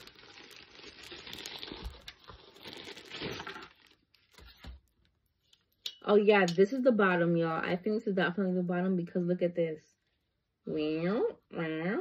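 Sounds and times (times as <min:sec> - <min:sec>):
plastic packaging crinkling: 0:00.0 - 0:05.2.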